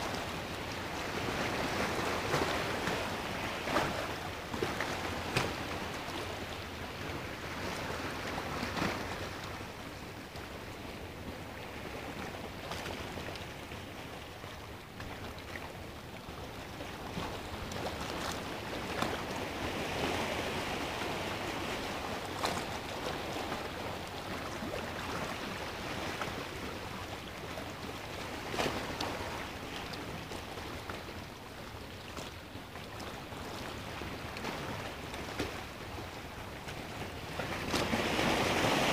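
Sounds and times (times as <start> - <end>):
waves breaking against rocks: 14.9 - 38.9.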